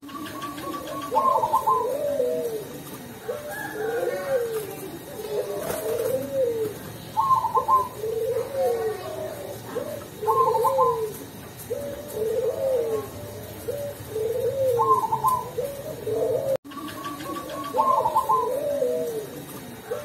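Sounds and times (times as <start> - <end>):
dove cooing: 0.0 - 20.0.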